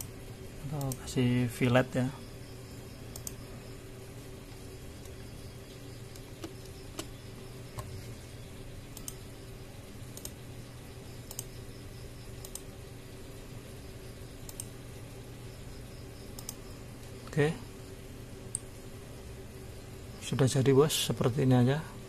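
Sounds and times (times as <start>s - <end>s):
mouse and keyboard clicks: 14.5s - 14.7s.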